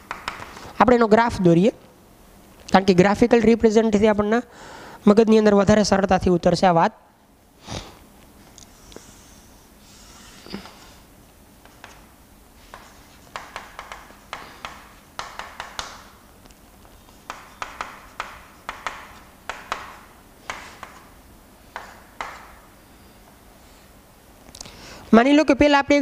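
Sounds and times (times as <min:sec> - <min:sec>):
chalk tapping on chalkboard: 0:00.0 - 0:00.6, 0:11.6 - 0:16.2, 0:16.8 - 0:22.7.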